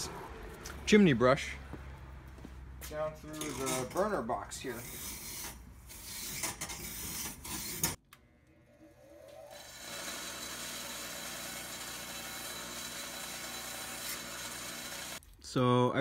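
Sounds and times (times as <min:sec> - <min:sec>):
wire brush scraping metal: 0:03.3 - 0:08.0
bench grinder wire wheel: 0:09.5 - 0:15.2.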